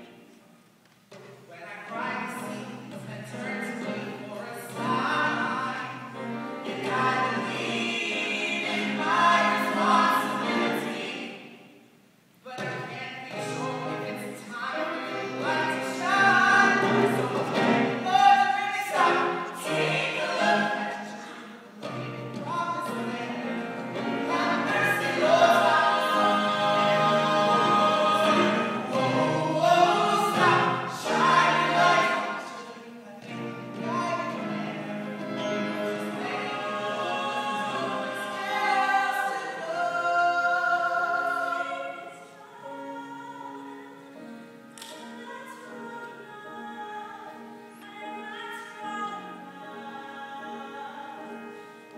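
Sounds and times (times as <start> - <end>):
piano accompaniment: 1.9 - 11.6, 12.6 - 51.9
voices singing in harmony: 3.3 - 11.7, 12.5 - 51.9.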